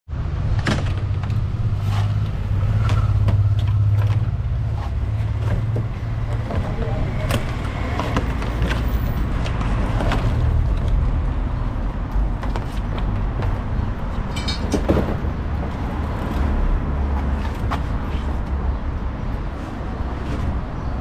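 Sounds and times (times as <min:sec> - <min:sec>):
street traffic rumble: 0:00.1 - 0:21.0
knocks and scrapes: 0:00.6 - 0:11.0.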